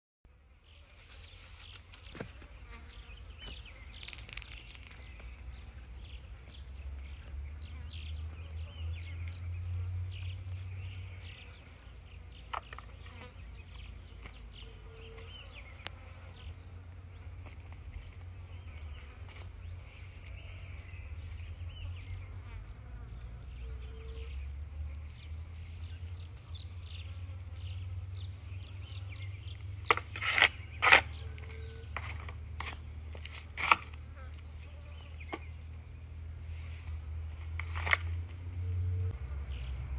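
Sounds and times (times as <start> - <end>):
insects buzzing and chirping: 1.7 - 5.8
sharp clicks or rustles: 3.9 - 5.3.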